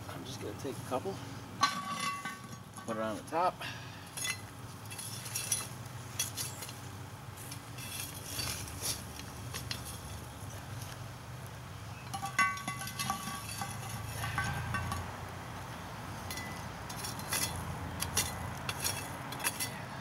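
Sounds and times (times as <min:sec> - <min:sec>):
coals clinking on metal: 0:01.6 - 0:03.3, 0:04.0 - 0:06.8, 0:07.4 - 0:10.3, 0:12.0 - 0:15.2, 0:16.2 - 0:20.0
shovel scraping charcoal: 0:01.6 - 0:03.3, 0:04.0 - 0:06.8, 0:07.4 - 0:11.0, 0:12.0 - 0:15.1, 0:16.2 - 0:20.0
ringing metal clang: 0:12.1 - 0:15.1.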